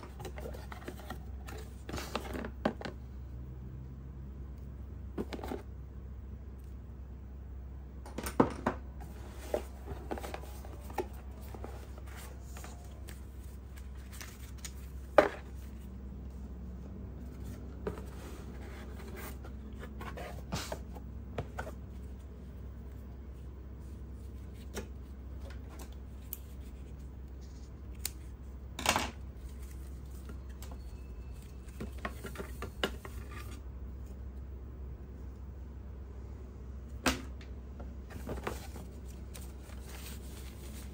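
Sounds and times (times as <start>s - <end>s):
cardboard packaging handled: 9.1s - 15.9s, 38.1s - 40.9s.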